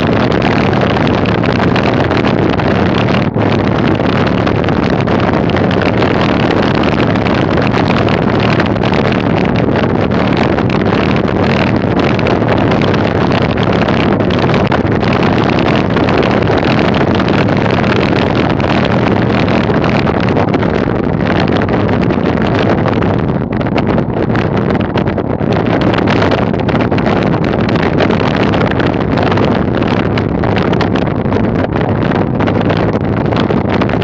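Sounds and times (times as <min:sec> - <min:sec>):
bicycle tyres rumbling over gravel: 0:00.0 - 0:34.0
wind rush on microphone: 0:00.0 - 0:34.0.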